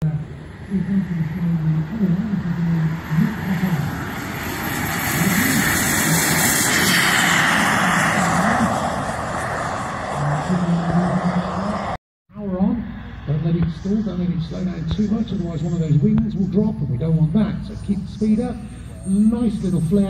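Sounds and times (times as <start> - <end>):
model jet turbine whine: 0.1 - 12.0.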